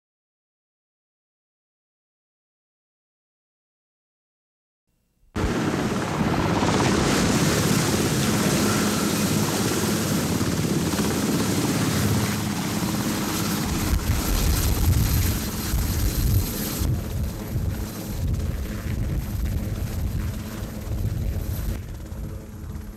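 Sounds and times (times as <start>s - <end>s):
helicopter rotor and engines: 5.4s - 22.9s.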